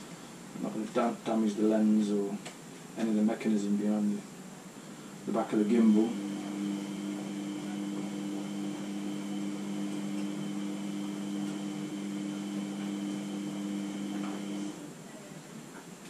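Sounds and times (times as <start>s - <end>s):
hair dryer running: 5.8s - 14.8s.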